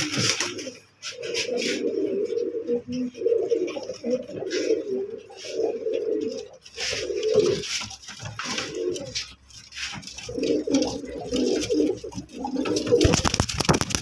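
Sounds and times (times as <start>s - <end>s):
wings flapping: 0.0s - 1.8s, 6.3s - 14.0s
pigeons cooing: 0.0s - 14.0s.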